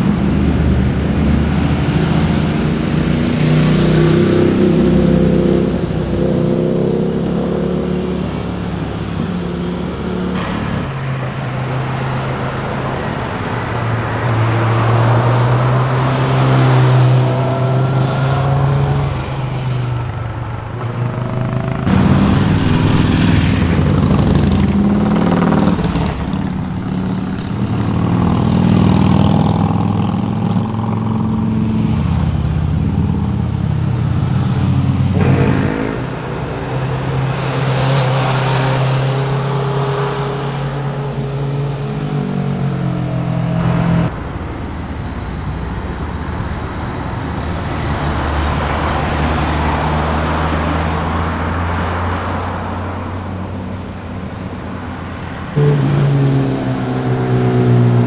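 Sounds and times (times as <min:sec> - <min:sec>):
motorcycles passing: 0:00.0 - 0:58.0.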